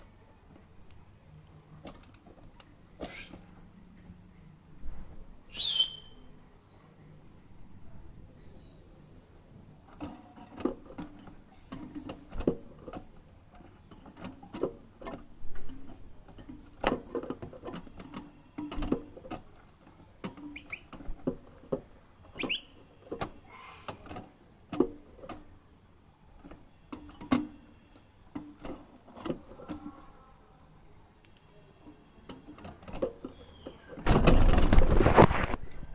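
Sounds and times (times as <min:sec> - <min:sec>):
bird chirping faintly: 0:05.5 - 0:09.2, 0:22.2 - 0:24.0.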